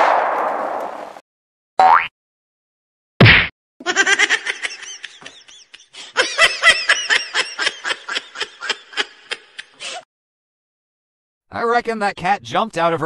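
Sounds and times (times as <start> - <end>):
loud bang: 0.0 - 1.2
person laughing hard: 3.8 - 10.0.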